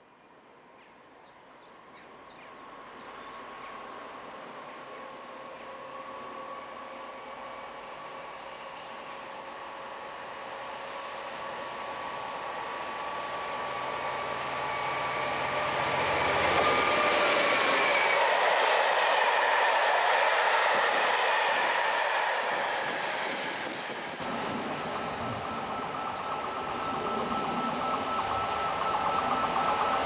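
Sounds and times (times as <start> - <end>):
diesel locomotive passing: 0.4 - 30.0
wheels rumbling on rail: 0.6 - 30.0
high whine: 24.2 - 30.0.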